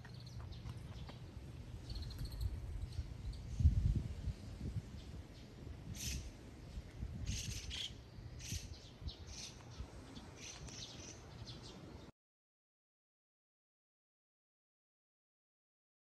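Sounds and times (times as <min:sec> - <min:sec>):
small birds chirping: 0:00.0 - 0:12.1.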